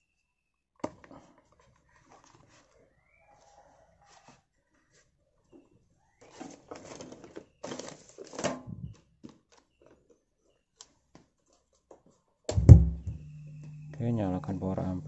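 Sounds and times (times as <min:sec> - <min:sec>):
soft handling noises: 0:00.9 - 0:12.4
amplifier switching on thump: 0:12.5 - 0:14.1
low mains hum: 0:12.5 - 0:15.0.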